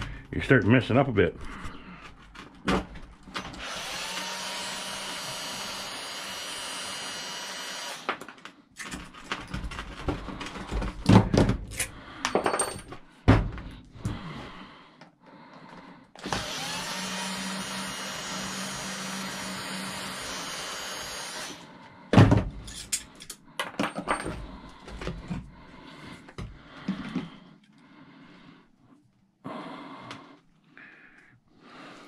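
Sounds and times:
cordless drill running: 0:03.3 - 0:08.2, 0:16.2 - 0:21.7
knocks and clatter of handling: 0:08.1 - 0:14.2, 0:22.1 - 0:25.5.

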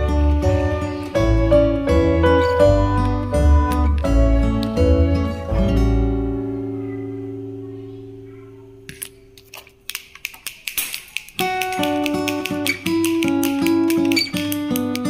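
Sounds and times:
plucked guitar music: 0:00.0 - 0:10.0, 0:11.3 - 0:15.0
toy spinning clicks and rattles: 0:10.0 - 0:15.0.

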